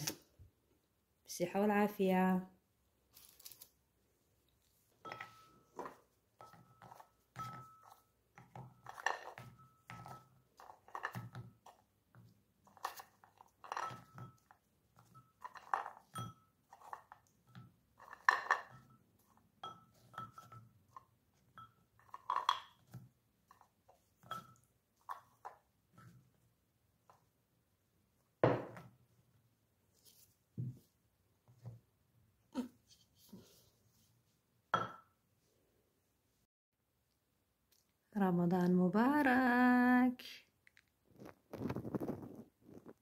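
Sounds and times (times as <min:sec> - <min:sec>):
biscuits clinking on glass and china: 0:12.7 - 0:23.0.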